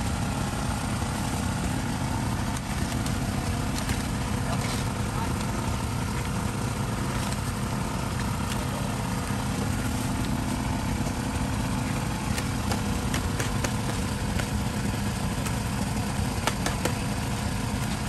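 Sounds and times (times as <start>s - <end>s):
motor drone: 0.0s - 18.0s.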